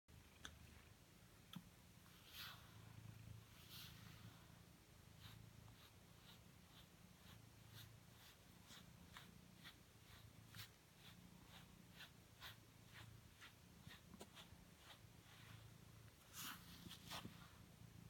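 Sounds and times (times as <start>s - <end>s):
cat purring: 0.1s - 18.0s
brush strokes through cat fur: 1.9s - 18.0s.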